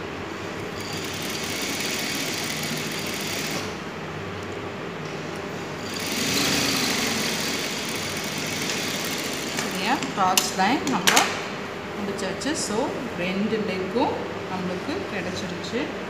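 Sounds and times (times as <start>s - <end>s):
sewing machine stitching: 0.8s - 3.7s, 5.8s - 9.8s.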